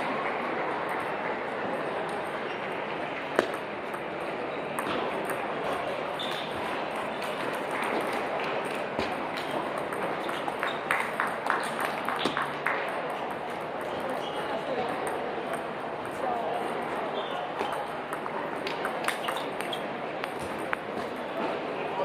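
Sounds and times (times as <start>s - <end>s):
hall background noise: 0.0s - 22.0s
table tennis balls clicking: 3.2s - 16.2s, 17.5s - 21.2s.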